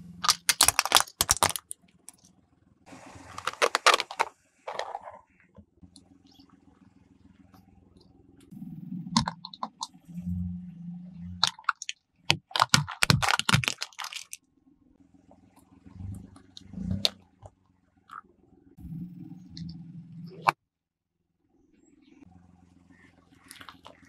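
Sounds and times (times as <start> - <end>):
plastic tubs being crushed: 0.2 - 1.7, 3.3 - 5.1, 11.4 - 14.4
objects cracking under a tyre: 0.2 - 2.3, 3.3 - 5.2, 11.4 - 14.4.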